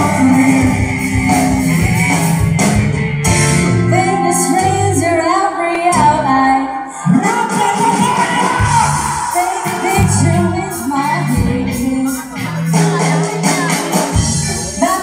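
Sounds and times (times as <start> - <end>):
woman singing: 0.0 - 1.4, 3.8 - 7.0, 9.2 - 15.0
live band playing: 0.0 - 15.0.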